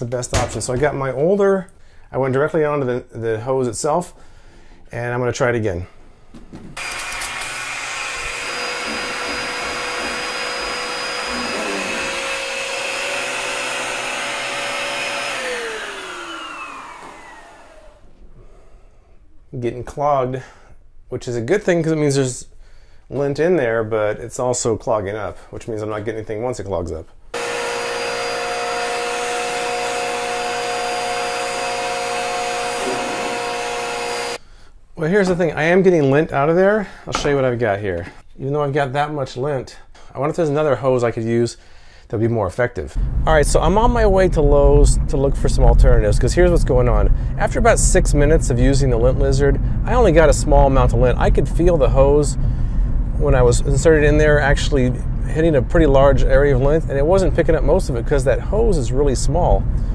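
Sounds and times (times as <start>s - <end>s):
vacuum motor winding down: 6.8s - 18.1s, 27.4s - 34.4s
vacuum cleaner whining: 6.8s - 18.2s, 27.4s - 34.4s.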